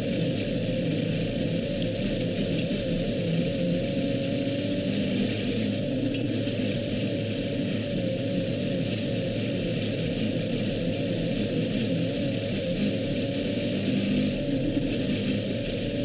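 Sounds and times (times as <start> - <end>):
race car engine running: 0.0 - 16.0.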